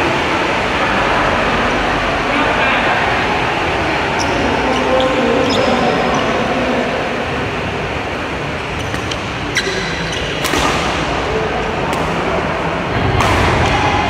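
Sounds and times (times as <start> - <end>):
hall background noise: 0.0 - 14.0
racket striking shuttlecock: 10.2 - 11.0, 12.9 - 13.9.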